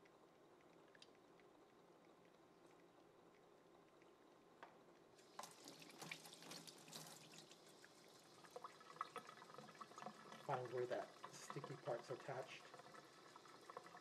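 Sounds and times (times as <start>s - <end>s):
water drips: 0.0s - 14.0s
tap water running into sink: 5.2s - 14.0s.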